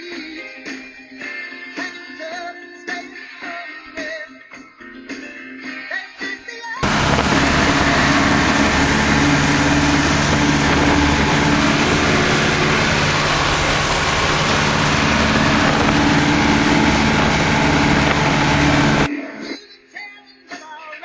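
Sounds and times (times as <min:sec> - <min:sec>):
airplane engine drone: 0:06.8 - 0:19.1
rush of air: 0:06.8 - 0:19.1.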